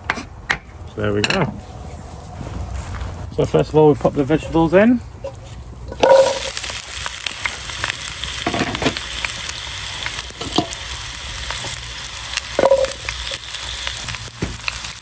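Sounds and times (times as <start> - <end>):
vegetables sizzling in oil: 5.2 - 15.0
vegetables clattering into pot: 5.9 - 6.6, 8.4 - 9.0, 10.3 - 10.8, 12.5 - 13.1
ringing clink from pot: 6.0 - 6.5, 12.6 - 13.0.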